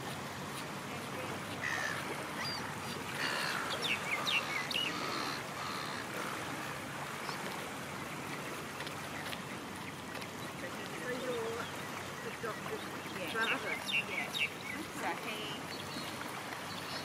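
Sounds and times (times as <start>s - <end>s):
small waves lapping: 0.0s - 17.0s.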